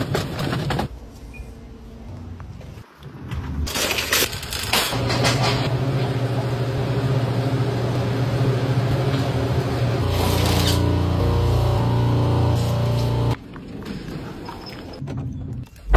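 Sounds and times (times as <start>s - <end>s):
low mechanical hum: 4.8s - 13.4s.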